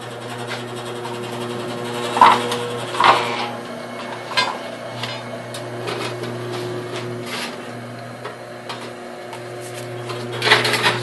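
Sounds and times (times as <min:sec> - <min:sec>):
steady mechanical hum: 0:00.0 - 0:11.0
steel parts clunking and scraping: 0:02.1 - 0:05.2.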